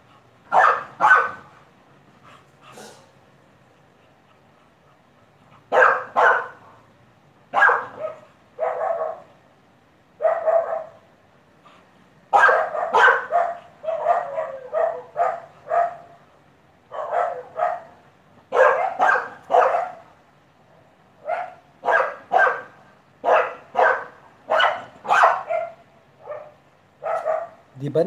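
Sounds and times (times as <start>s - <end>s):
dog barking loudly: 0.4s - 1.6s, 5.6s - 6.8s, 7.5s - 9.4s, 10.2s - 11.1s, 12.3s - 16.3s, 16.9s - 20.1s, 21.2s - 27.7s.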